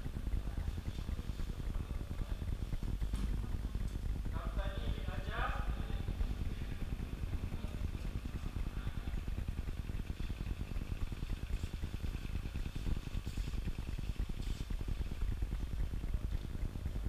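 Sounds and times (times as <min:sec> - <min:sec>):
low background rumble: 0:00.0 - 0:17.0
faint ticks: 0:07.8 - 0:17.0.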